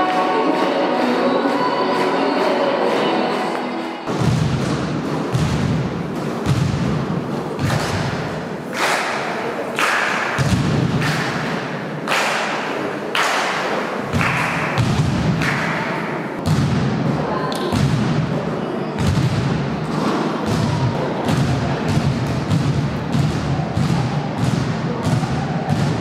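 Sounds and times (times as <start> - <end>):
basketballs bouncing on wooden floor: 4.1 - 8.3, 14.1 - 15.4, 16.4 - 16.9, 19.0 - 19.5, 20.4 - 26.0.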